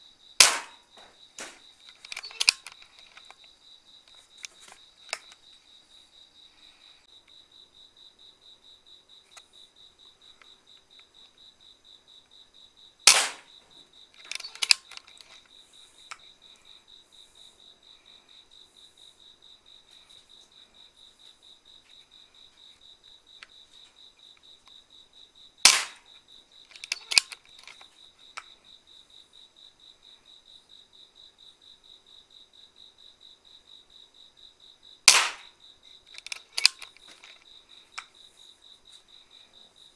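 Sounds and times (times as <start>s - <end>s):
air rifle shots: 0.4s - 2.6s, 13.1s - 13.5s, 25.6s - 26.0s, 35.1s - 35.5s
soft clicks: 1.4s - 3.4s, 36.2s - 37.4s.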